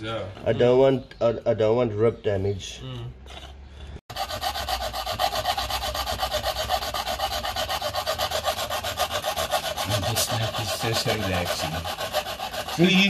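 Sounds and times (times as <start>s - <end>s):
hacksaw cutting sheet metal: 4.1s - 13.0s.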